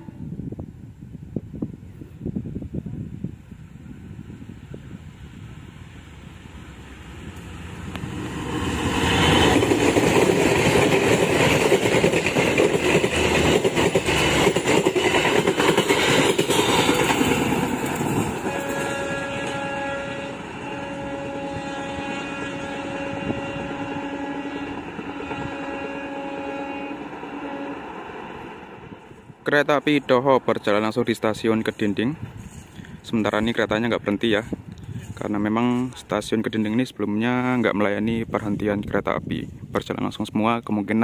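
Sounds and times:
train horn blasts: 0:00.0 - 0:00.4, 0:18.4 - 0:28.1
train passing: 0:00.0 - 0:40.2
wheels clicking over rail joints: 0:07.3 - 0:18.9.

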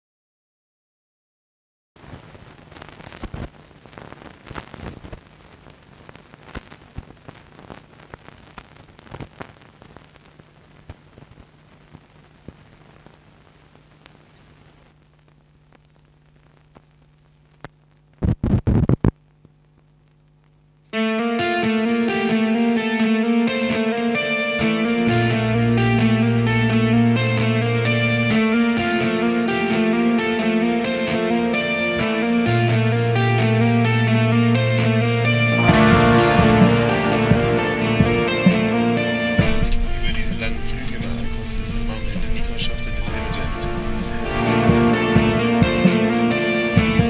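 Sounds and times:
faint steady hum: 0:02.0 - 0:20.9, 0:34.4 - 0:46.8
film crackle and pops: 0:02.0 - 0:21.0, 0:39.4 - 0:46.1
rock music with electric guitar: 0:21.0 - 0:47.0.

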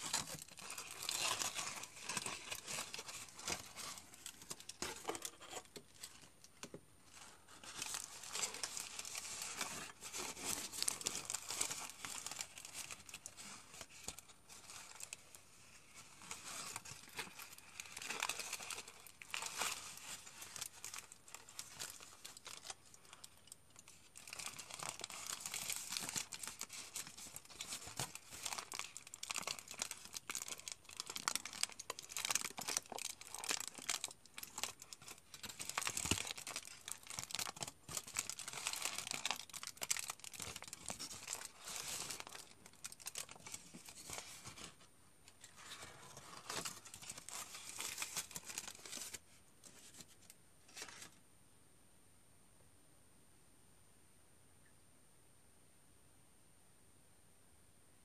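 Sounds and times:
aluminium foil crumpling: 0:00.0 - 0:06.3, 0:07.1 - 0:44.8.

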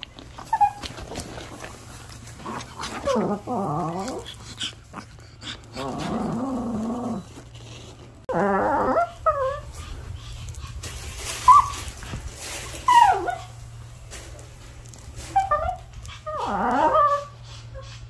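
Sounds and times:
dog whining and yipping: 0:00.4 - 0:01.3, 0:08.3 - 0:09.8, 0:11.4 - 0:11.9, 0:12.8 - 0:13.6, 0:15.2 - 0:18.0.

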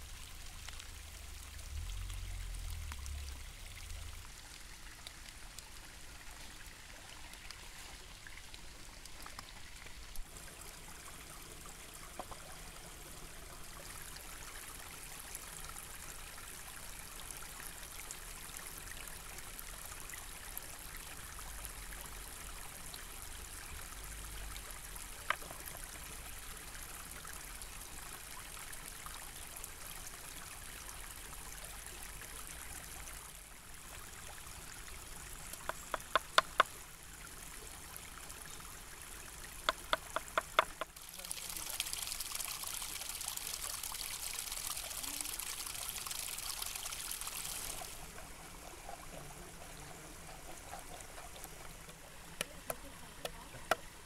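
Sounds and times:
stream running: 0:00.0 - 0:54.0.

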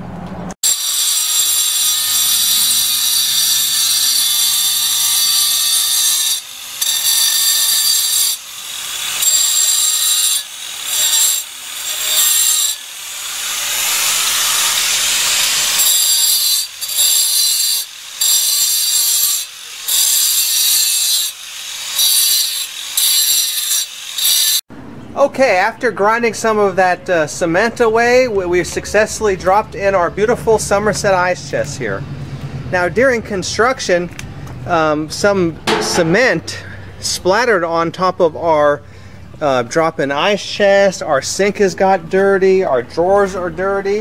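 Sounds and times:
angle grinder grinding concrete: 0:00.6 - 0:24.6.

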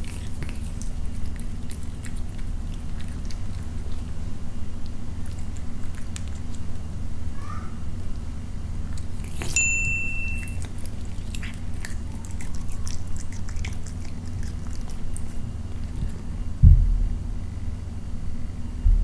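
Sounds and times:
cat chewing: 0:00.0 - 0:07.3, 0:07.9 - 0:16.6
low hum: 0:00.0 - 0:19.0
high ping: 0:09.6 - 0:10.6.

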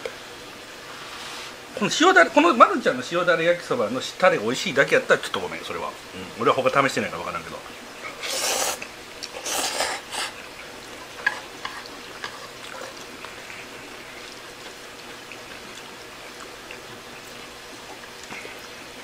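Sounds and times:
person chewing food: 0:08.2 - 0:18.8.

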